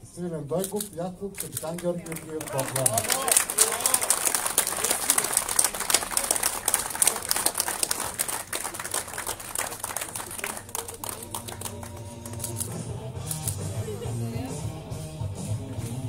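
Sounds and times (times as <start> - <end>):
crowd applause: 1.7 - 12.6.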